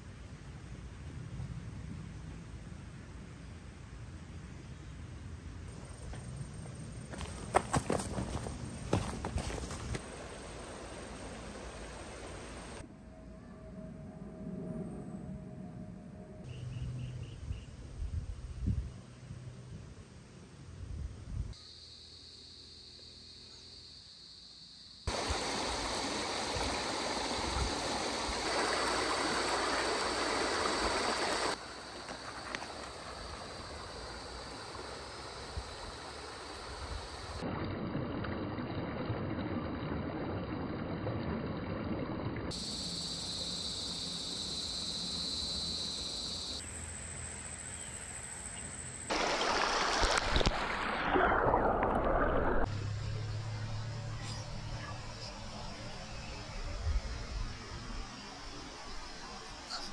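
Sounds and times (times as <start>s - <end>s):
stream water rushing: 7.2s - 12.8s, 25.1s - 37.5s, 49.1s - 52.7s.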